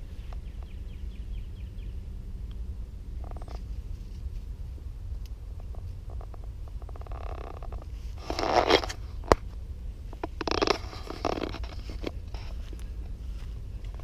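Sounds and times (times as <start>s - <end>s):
steady low rumble: 0.0s - 14.0s
branches brushing past: 3.2s - 4.8s.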